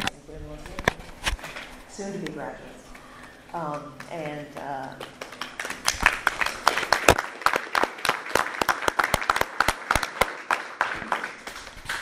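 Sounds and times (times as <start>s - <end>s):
small group applauding: 4.0s - 12.0s.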